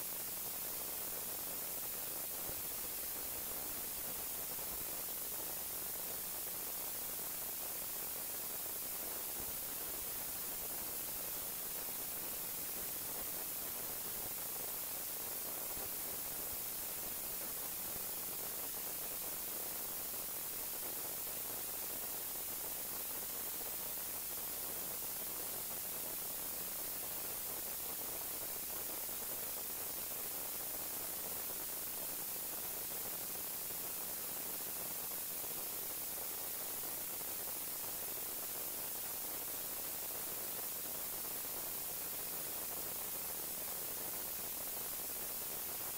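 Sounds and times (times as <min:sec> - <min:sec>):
static hiss: 0:00.0 - 0:45.9.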